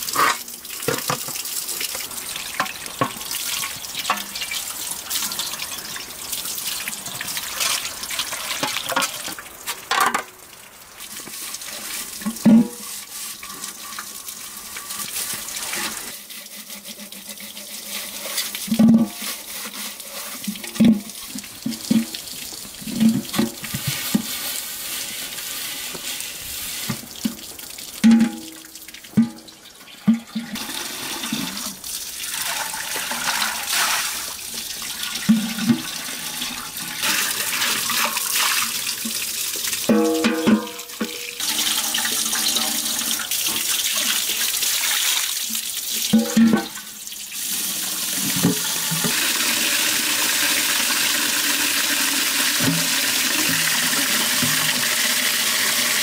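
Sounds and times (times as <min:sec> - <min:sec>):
pot being scrubbed: 0:00.0 - 0:00.5, 0:11.2 - 0:22.2, 0:22.8 - 0:27.2, 0:30.0 - 0:34.4, 0:35.1 - 0:39.1, 0:39.9 - 0:44.5
water running from tap: 0:00.0 - 0:09.5, 0:10.6 - 0:56.0
metal pot knocking: 0:28.0 - 0:28.6, 0:39.9 - 0:42.7.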